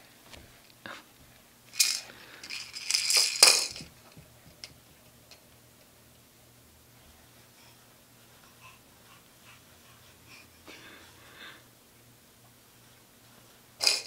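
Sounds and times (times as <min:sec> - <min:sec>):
toy rattle shaking: 0:01.7 - 0:03.9, 0:13.8 - 0:14.0.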